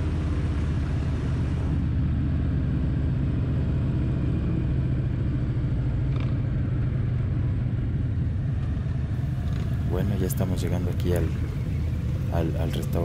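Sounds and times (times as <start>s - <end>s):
motorcycle engine running: 9.2s - 13.0s.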